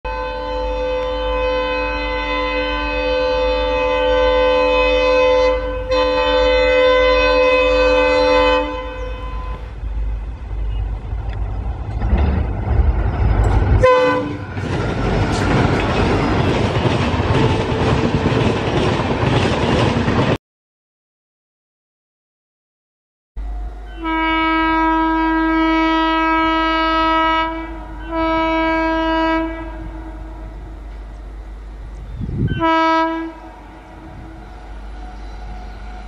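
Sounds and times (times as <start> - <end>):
locomotive air horn: 0.1 - 9.9, 13.8 - 15.5, 23.4 - 31.0, 32.2 - 36.0
locomotive engine rumble: 0.2 - 20.3, 23.4 - 36.0
train coaches clattering past: 0.3 - 20.4, 23.4 - 36.0.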